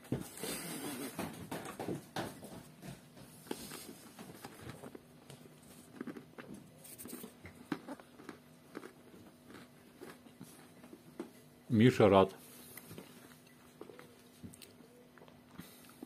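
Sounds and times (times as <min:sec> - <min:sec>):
low steady hum: 0:02.3 - 0:16.0.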